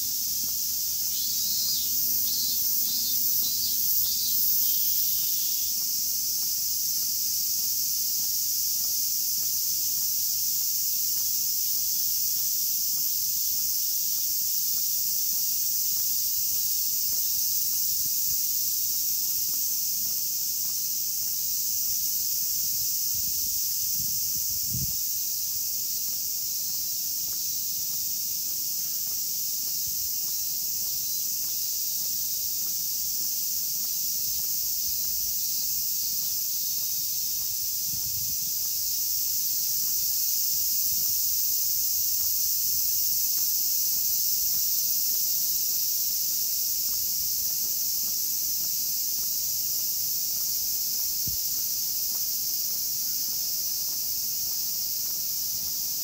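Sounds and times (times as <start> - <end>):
cicadas droning: 0.0 - 56.0
footsteps on paved path: 0.0 - 56.0.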